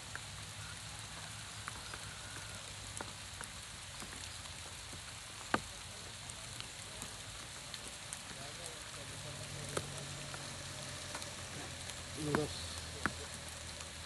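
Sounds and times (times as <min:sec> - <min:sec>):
light rain pattering: 0:00.0 - 0:14.0
raindrop ticks: 0:00.0 - 0:14.0.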